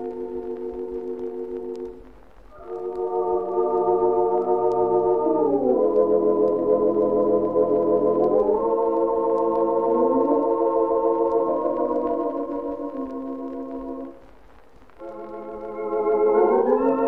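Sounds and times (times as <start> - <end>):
record surface clicks: 0.0 - 17.0
theatre organ playing chords: 2.6 - 14.1, 15.0 - 17.0.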